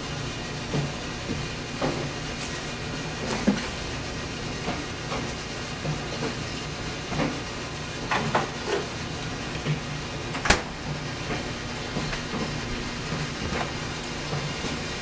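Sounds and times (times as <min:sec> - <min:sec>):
refrigerator door shutting: 0:10.3 - 0:12.7.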